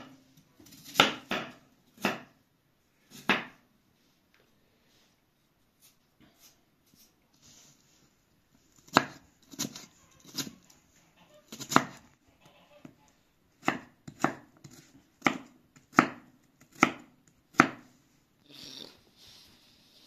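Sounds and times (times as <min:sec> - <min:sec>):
knife chopping on wooden board: 0:00.8 - 0:02.4, 0:08.8 - 0:10.6, 0:11.5 - 0:12.0, 0:13.6 - 0:17.9.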